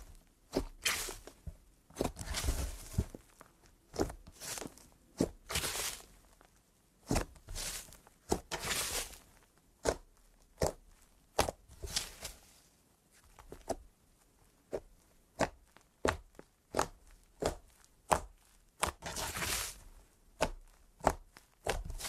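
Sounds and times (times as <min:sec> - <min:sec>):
slime squelching: 0:00.0 - 0:12.5.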